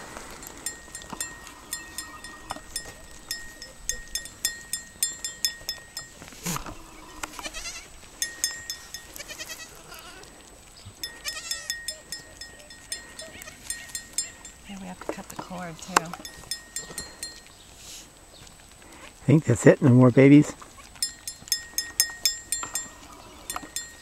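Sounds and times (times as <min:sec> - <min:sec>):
goats bleating: 0:06.2 - 0:10.3, 0:11.0 - 0:14.6.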